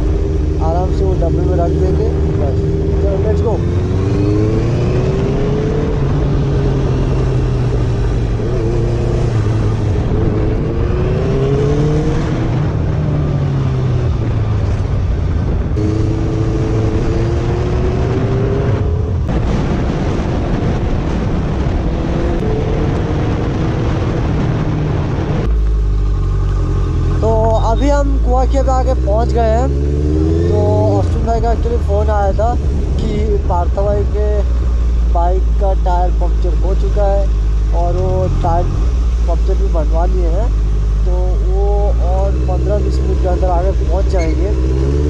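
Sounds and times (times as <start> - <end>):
wind rush: 0.0 - 25.7, 29.0 - 36.4
motorcycle engine accelerating: 0.0 - 45.0.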